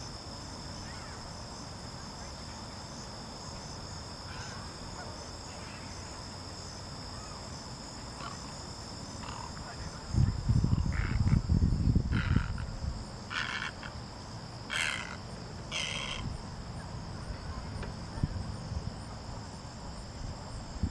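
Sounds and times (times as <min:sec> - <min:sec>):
insects buzzing: 0:00.0 - 0:20.9
low rumble on microphone: 0:09.8 - 0:13.1.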